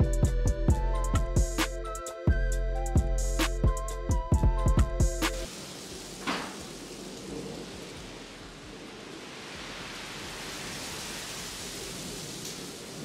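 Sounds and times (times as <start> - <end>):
steady background hiss: 5.4 - 13.0.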